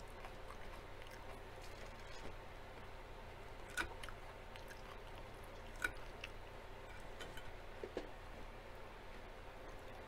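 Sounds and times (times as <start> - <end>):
chewing salad: 0.0 - 8.0.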